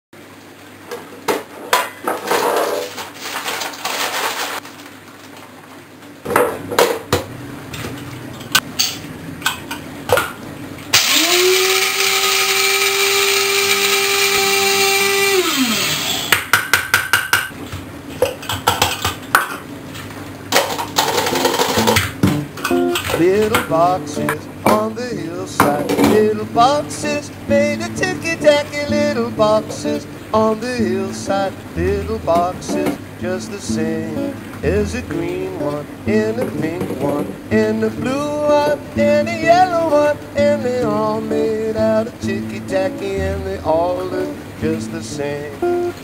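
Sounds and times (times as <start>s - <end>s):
electric coffee grinder: 10.9s - 16.4s.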